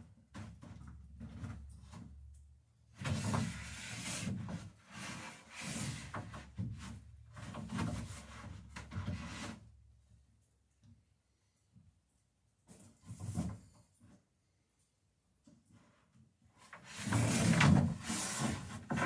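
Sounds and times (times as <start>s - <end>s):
wood scraping against wood: 3.1s - 9.6s, 16.6s - 19.0s.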